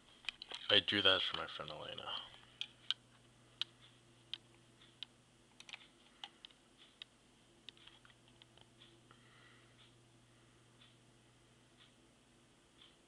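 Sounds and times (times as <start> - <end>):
low steady hum: 0.0 - 13.0
computer keys tapping: 2.4 - 9.0.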